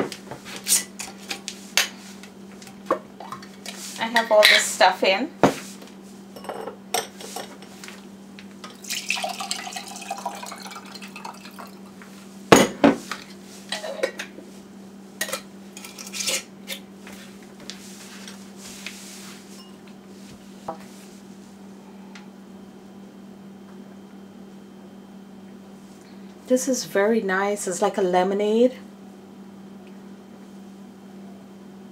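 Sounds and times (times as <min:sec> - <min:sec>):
steady low hum: 0:00.0 - 0:31.9
drink pouring through strainer: 0:08.7 - 0:11.8.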